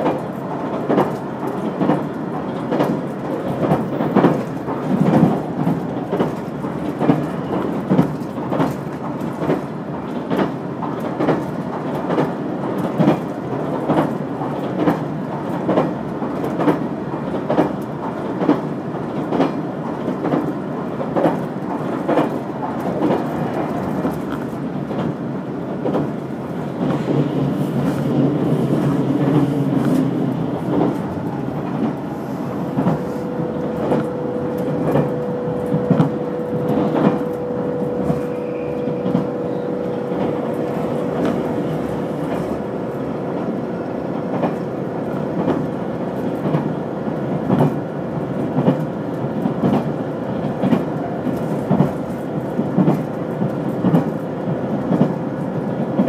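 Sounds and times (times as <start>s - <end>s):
wheels clicking over rail joints: 0.0s - 43.5s
train rumble inside carriage: 0.0s - 56.0s.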